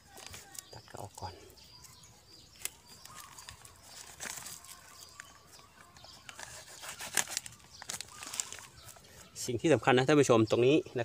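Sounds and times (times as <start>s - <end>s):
plastic crinkling: 2.6s - 9.1s
knife scraping plastic: 6.0s - 8.5s.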